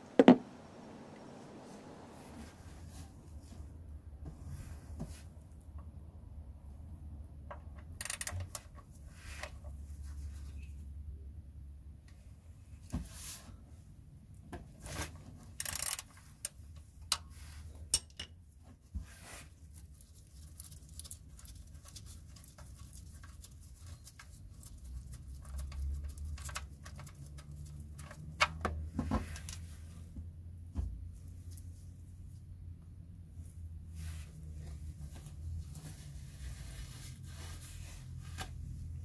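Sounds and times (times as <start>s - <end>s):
low steady hum: 0.0s - 7.5s.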